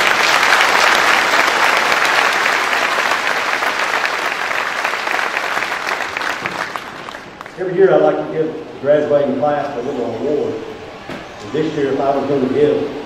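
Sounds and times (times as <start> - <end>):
crowd applauding: 0.0 - 7.6.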